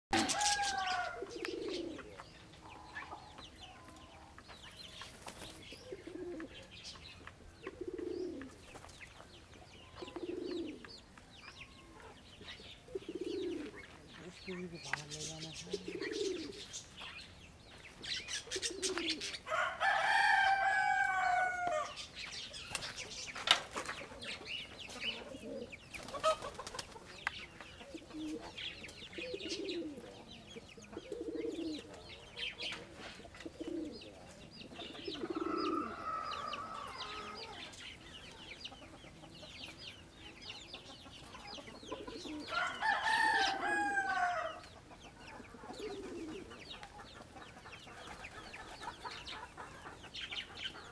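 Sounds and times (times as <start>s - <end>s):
rooster crowing: 0.1s - 1.4s, 19.4s - 22.0s, 35.5s - 37.6s, 42.5s - 44.7s
pigeons cooing: 0.1s - 9.2s, 9.8s - 17.0s, 18.0s - 50.9s.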